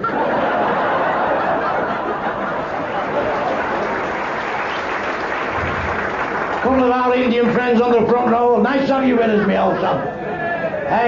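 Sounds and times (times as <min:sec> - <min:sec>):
audience laughing: 0:00.0 - 0:06.9, 0:08.9 - 0:10.4
audience applauding: 0:01.1 - 0:08.4.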